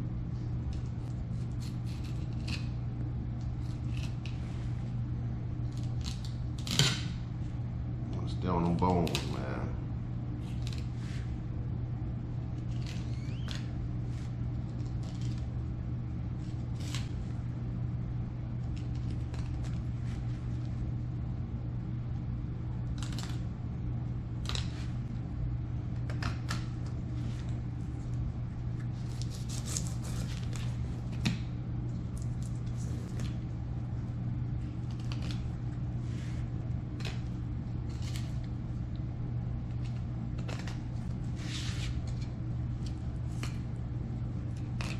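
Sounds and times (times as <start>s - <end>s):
steady low hum: 0.0s - 44.9s
knife scraping fish bones: 29.0s - 30.7s.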